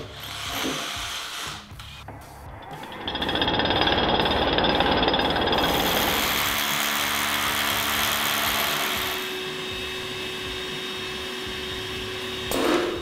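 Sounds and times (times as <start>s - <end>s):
rotary hammer drill whine: 2.6s - 12.6s.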